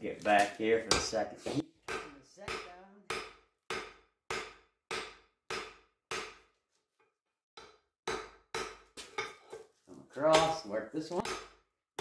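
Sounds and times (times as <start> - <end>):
hammer striking metal on anvil: 1.9 - 6.5, 7.6 - 9.4.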